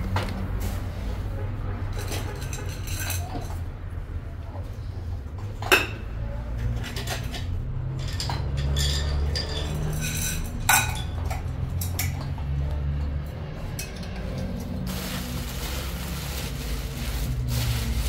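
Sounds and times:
pots and dishes clattering: 6.8s - 12.3s.

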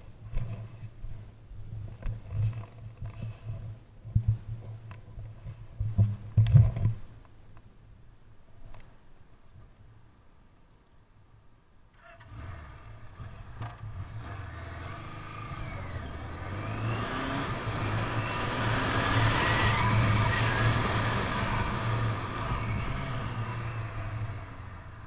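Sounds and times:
motorcycle engine running: 12.6s - 25.0s
wind on microphone: 15.7s - 24.8s.

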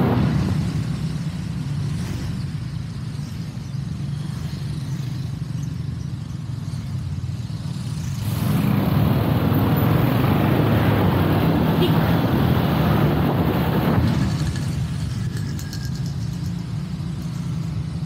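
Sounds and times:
rush of noise: 0.0s - 2.4s, 8.1s - 18.0s
scooter engine humming: 0.0s - 18.0s.

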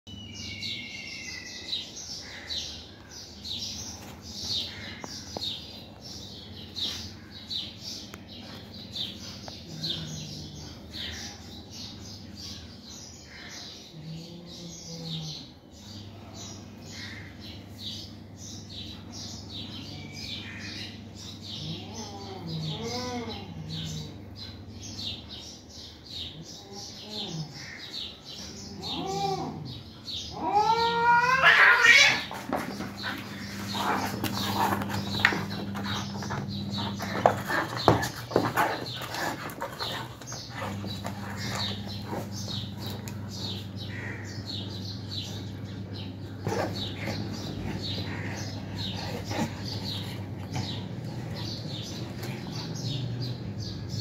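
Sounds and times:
small birds chirping: 0.1s - 54.0s
cats yowling: 21.6s - 24.1s, 28.7s - 44.4s
steady low hum: 32.4s - 54.0s.

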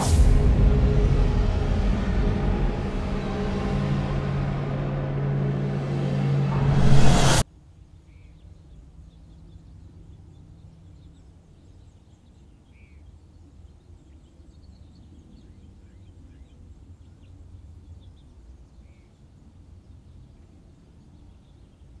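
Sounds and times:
low rumble: 0.0s - 7.4s
faint bird chirps: 7.9s - 22.0s.

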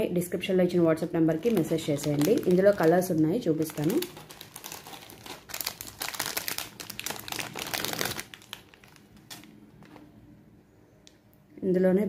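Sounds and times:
plastic packet crinkling: 1.0s - 10.0s.

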